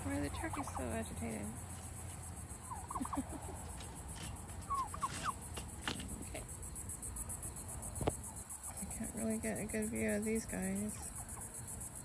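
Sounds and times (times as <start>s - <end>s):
turkey calling: 0.0s - 6.5s, 10.0s - 11.6s.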